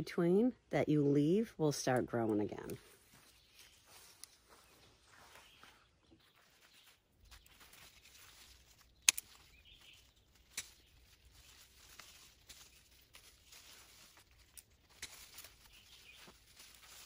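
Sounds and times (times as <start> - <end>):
leaves rustling: 2.1 - 17.0
pruning shears snipping stalks: 7.5 - 17.0.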